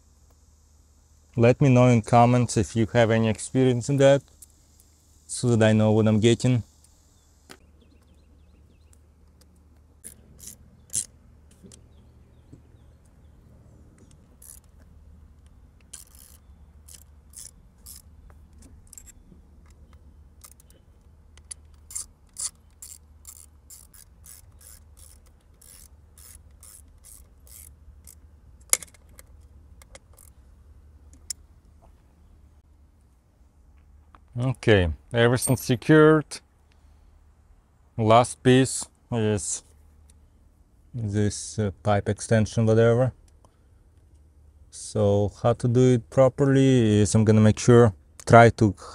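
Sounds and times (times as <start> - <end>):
ratchet wrench clicking: 10.0 - 11.1, 14.1 - 14.9, 15.8 - 19.8, 20.4 - 20.8, 21.4 - 30.4.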